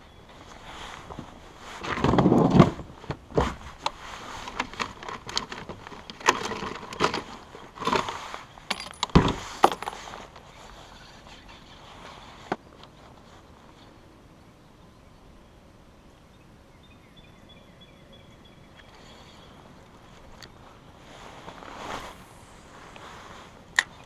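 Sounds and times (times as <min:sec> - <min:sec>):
rustle: 0:00.0 - 0:24.0
tackle box and gear clattering: 0:01.8 - 0:10.4.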